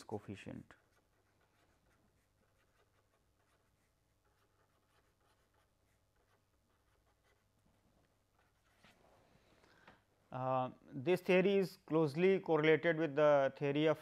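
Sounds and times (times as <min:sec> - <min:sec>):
marker pen scratching on paper: 0:00.2 - 0:09.0.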